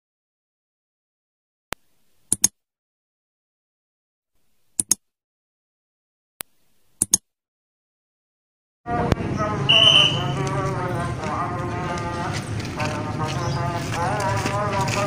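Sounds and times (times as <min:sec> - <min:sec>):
mouse double clicks: 0:02.3 - 0:02.5, 0:04.7 - 0:05.0, 0:06.4 - 0:07.2.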